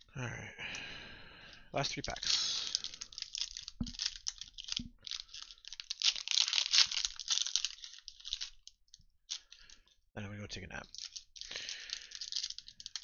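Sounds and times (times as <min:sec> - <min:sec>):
wrappers crinkling and tearing: 0:01.9 - 0:09.8, 0:10.8 - 0:13.0.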